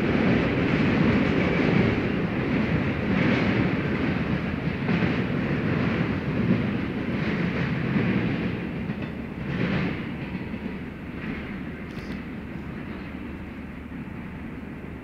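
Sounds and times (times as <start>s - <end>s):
freight train wheels rumbling on rail: 0.0s - 15.0s.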